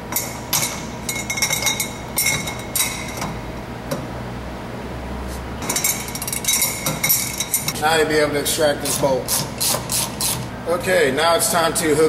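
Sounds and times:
metal clinks of wrench on nut: 0:05.6 - 0:07.8.

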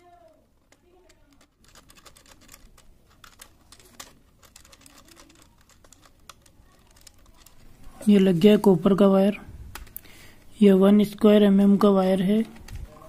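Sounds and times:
small clicks and ticks: 0:00.0 - 0:08.0.

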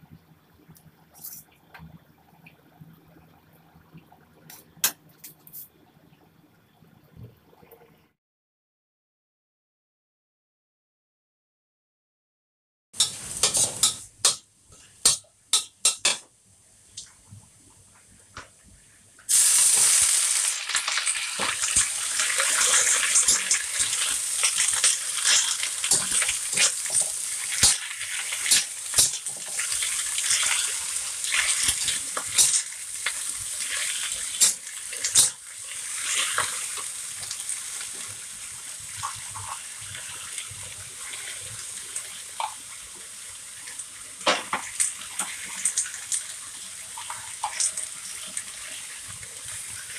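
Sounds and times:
spatula scraping wok: 0:13.0 - 0:16.2, 0:20.9 - 0:36.8
vegetables sizzling in wok: 0:13.0 - 0:16.2, 0:19.3 - 0:49.9.

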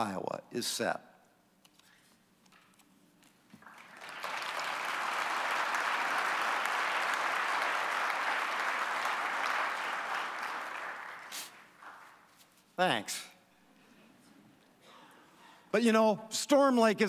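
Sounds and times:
audience applauding: 0:03.6 - 0:12.3.

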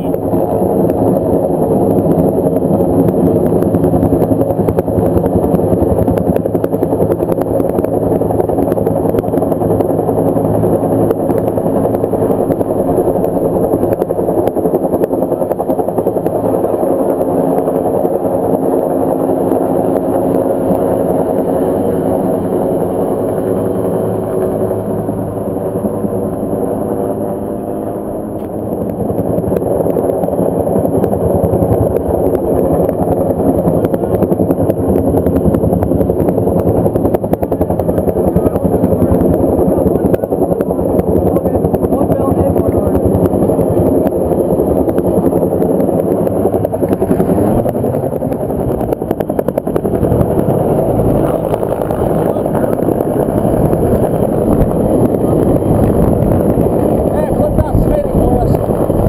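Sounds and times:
helicopter hovering overhead: 0:00.0 - 0:59.0.

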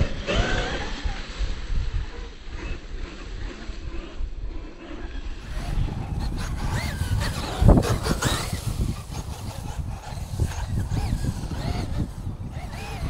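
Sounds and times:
steady low rumble: 0:00.8 - 0:13.0
electric motor whining: 0:05.4 - 0:13.0.

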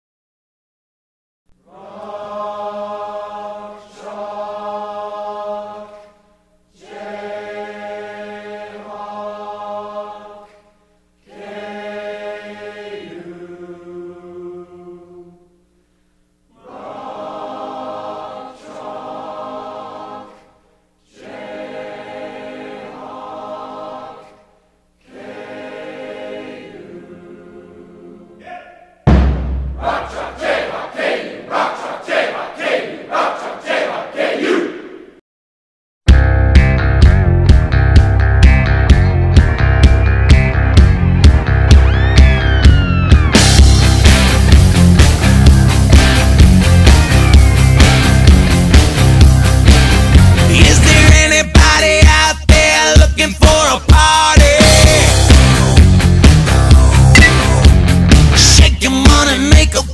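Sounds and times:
choir-like held chords: 0:01.6 - 0:15.6, 0:16.5 - 0:29.0, 0:29.6 - 0:35.2, 0:54.4 - 0:57.7.

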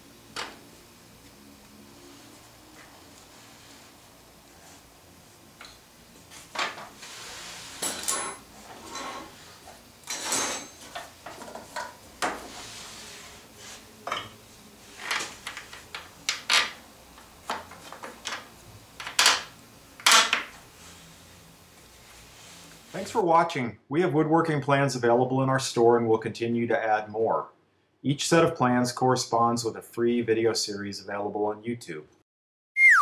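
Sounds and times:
knocks clinks and scrapes of metal: 0:07.6 - 0:12.6.

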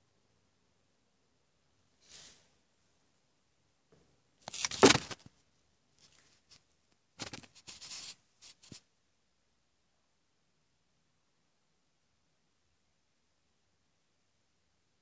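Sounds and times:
rubbing and scraping noises: 0:07.2 - 0:08.9.

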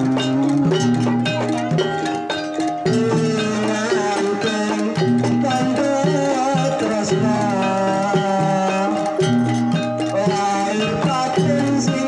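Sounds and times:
gamelan ensemble playing: 0:00.0 - 0:12.0
metallophone keys struck: 0:00.0 - 0:12.0
wavering melodic line: 0:00.0 - 0:12.0.

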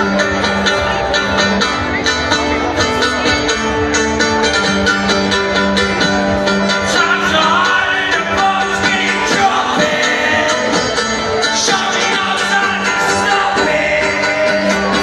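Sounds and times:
live punk rock music: 0:00.0 - 0:15.0
loud electric guitar: 0:00.0 - 0:15.0
man singing: 0:06.7 - 0:15.0.

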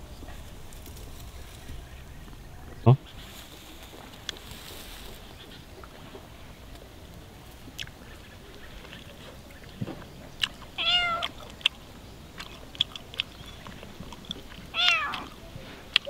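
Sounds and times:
cat meowing: 0:10.8 - 0:11.4, 0:14.7 - 0:15.4.

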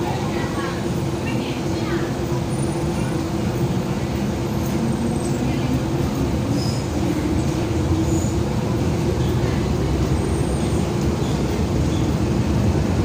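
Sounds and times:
train wheels rumbling: 0:00.0 - 0:13.0.

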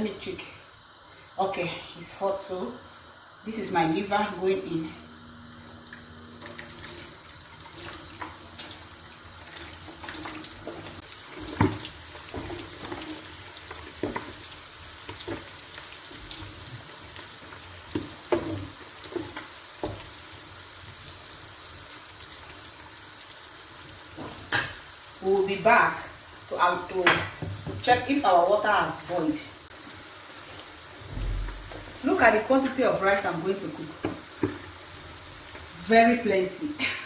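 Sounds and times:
liver frying in hot oil: 0:02.0 - 0:37.0
spatula knocking and scraping pan: 0:10.6 - 0:15.6, 0:17.9 - 0:20.2.

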